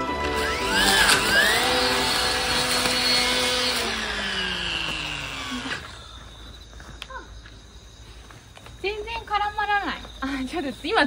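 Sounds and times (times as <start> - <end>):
blade whirring through grass: 0.0 - 6.2
brush cutter motor whine: 0.0 - 6.2.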